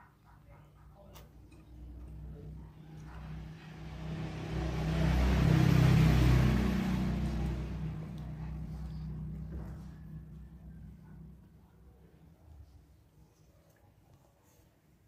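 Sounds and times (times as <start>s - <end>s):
vehicle passing by: 1.7s - 12.1s.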